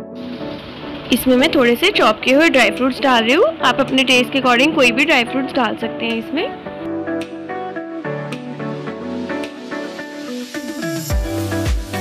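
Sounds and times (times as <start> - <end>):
heavy bass beat: 11.1 - 12.0.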